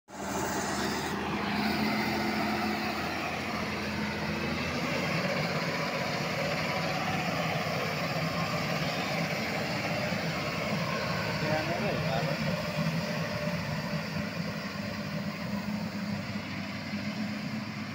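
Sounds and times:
wheel loader diesel engine running: 0.1 - 17.9.

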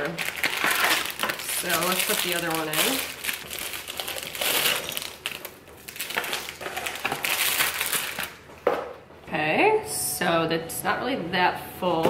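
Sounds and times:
plastic packaging crinkling: 0.0 - 8.5.

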